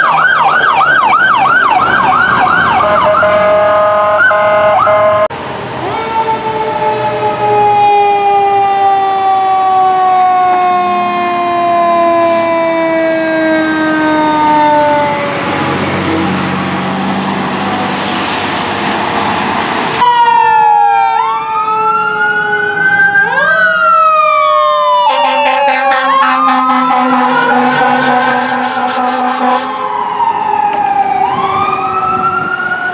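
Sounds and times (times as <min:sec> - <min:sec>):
truck engine and tyres on wet road: 0:00.0 - 0:07.6, 0:11.3 - 0:20.1, 0:25.1 - 0:32.9
fire engine siren: 0:00.0 - 0:32.9.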